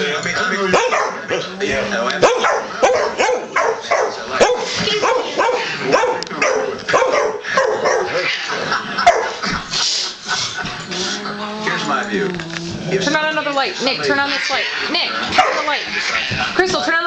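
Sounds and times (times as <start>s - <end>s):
dog barking and yipping: 0.8s - 1.5s, 2.2s - 8.3s, 9.0s - 9.4s, 15.3s - 15.8s.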